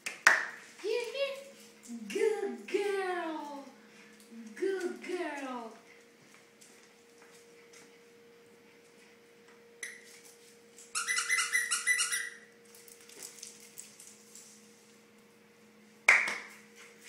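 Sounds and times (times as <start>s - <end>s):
squeaky dog toy squeaking: 11.0s - 12.4s.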